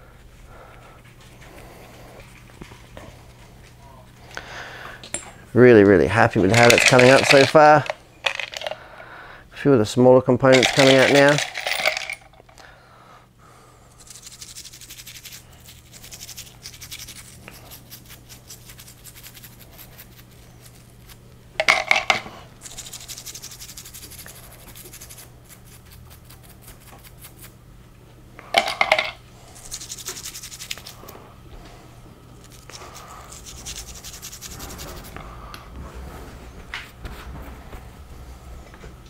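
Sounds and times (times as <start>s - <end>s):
toothbrush scratching metal: 14.0s - 21.2s, 22.6s - 27.5s, 29.5s - 31.0s, 32.4s - 35.2s.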